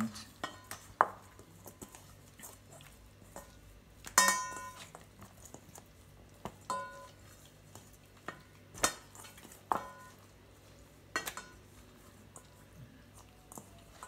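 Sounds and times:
metal bowl ringing: 4.2s - 4.8s, 6.7s - 7.2s.

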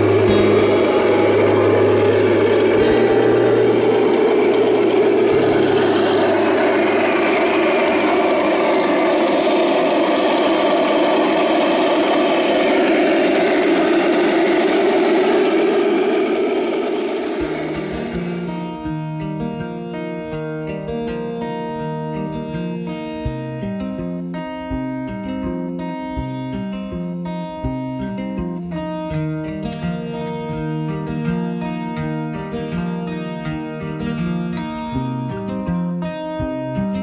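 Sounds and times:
low hum: 0.0s - 18.7s
model tank tracks running: 0.0s - 18.8s.

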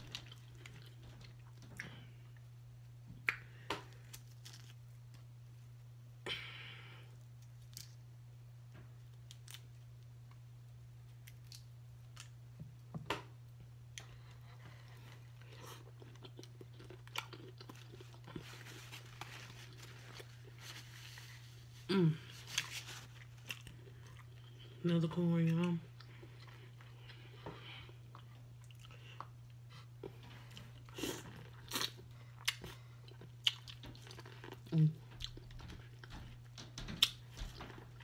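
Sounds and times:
steady low hum: 0.0s - 38.0s
chewing: 14.0s - 20.6s, 25.9s - 36.4s
rustling: 18.3s - 23.5s.

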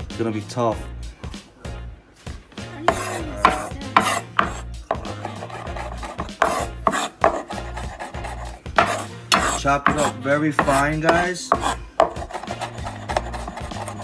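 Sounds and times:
blade scraping on board: 2.8s - 14.0s
knife chopping on wooden board: 2.9s - 14.0s.

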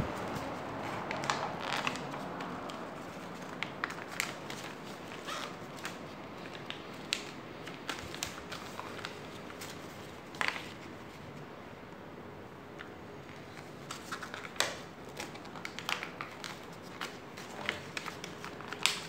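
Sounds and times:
paper crackling and rustling: 0.0s - 11.4s, 13.2s - 19.0s.

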